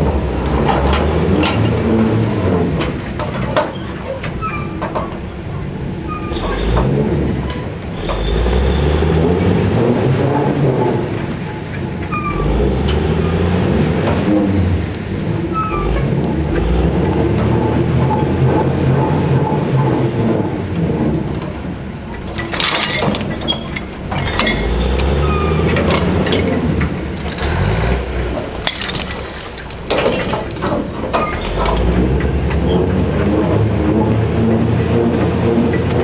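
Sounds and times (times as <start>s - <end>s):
dragline engine running: 5.1s - 36.0s
rocks scraping steel bucket: 12.2s - 36.0s
chains clanking: 21.8s - 32.3s.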